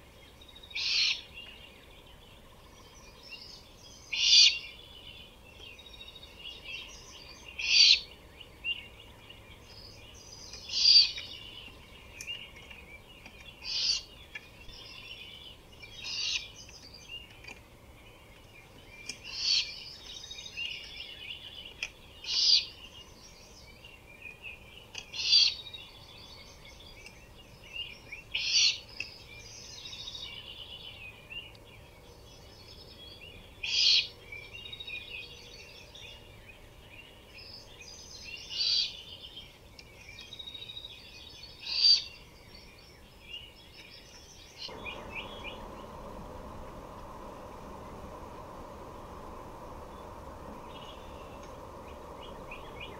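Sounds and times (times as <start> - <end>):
small birds calling: 0.0 - 52.9
owl raspy screech calls: 0.8 - 1.2, 4.2 - 4.6, 7.6 - 8.0, 13.6 - 14.1, 16.0 - 16.5, 19.3 - 19.7
steady hiss: 31.6 - 52.9.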